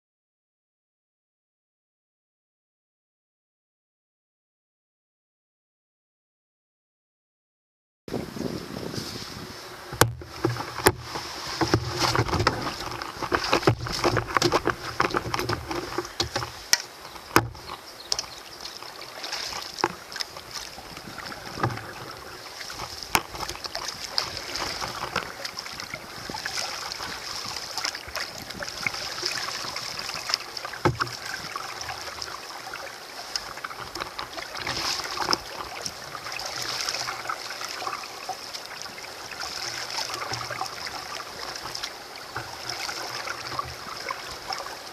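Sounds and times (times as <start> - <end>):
paddle strokes splashing: 8.4 - 44.9
sharp knocks on canoe: 9.9 - 18.3, 26.3 - 31.5.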